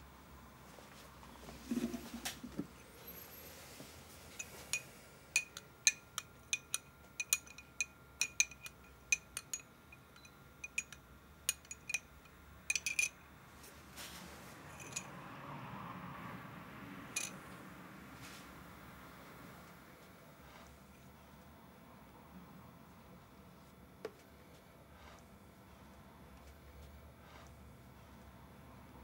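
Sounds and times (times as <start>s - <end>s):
glass and metal clinking: 4.3s - 12.1s, 12.7s - 13.2s, 14.7s - 15.1s, 17.2s - 17.4s.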